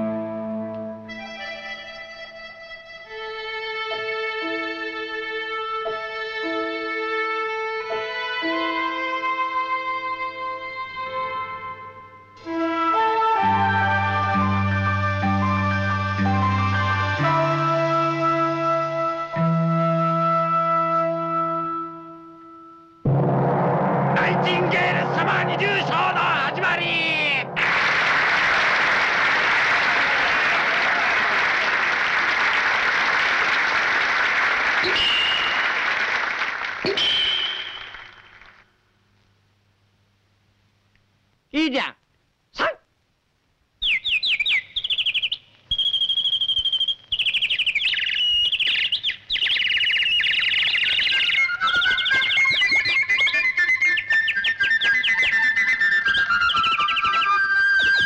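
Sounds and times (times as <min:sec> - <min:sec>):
man shouting loudly: 0:24.4 - 0:27.5, 0:41.6 - 0:42.0
crowd applauding: 0:26.9 - 0:38.7
cartoon birds chirping: 0:36.8 - 0:38.2, 0:43.8 - 0:58.0
lower warbling birdsong: 0:43.8 - 0:58.0.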